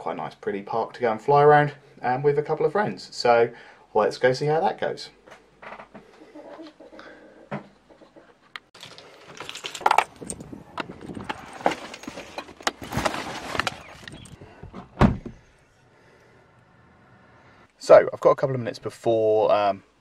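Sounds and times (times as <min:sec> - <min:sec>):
gear and plastic bags rustling: 0:08.8 - 0:14.6
heavy thump: 0:14.6 - 0:15.4.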